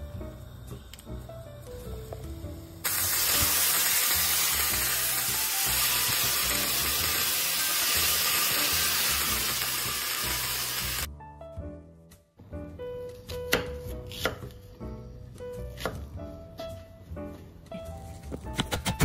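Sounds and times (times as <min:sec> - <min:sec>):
sausages sizzling in pan: 0:00.2 - 0:11.1.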